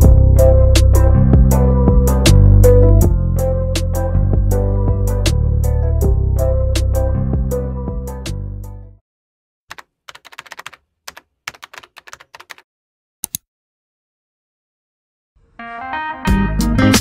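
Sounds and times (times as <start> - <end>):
background music: 0.0 - 9.0, 15.6 - 17.0
keyboard key clicks: 9.7 - 12.6, 13.2 - 13.4.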